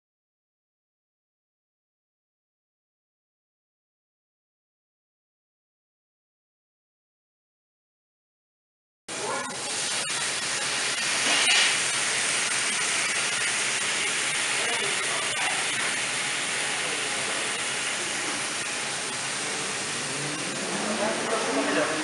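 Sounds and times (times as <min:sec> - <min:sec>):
food sizzling in frying pans: 0:09.1 - 0:22.0.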